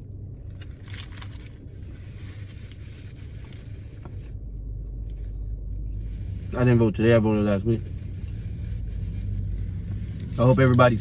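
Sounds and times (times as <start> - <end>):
low car interior hum: 0.0 - 11.0
paper wrapper rustling: 0.4 - 4.4.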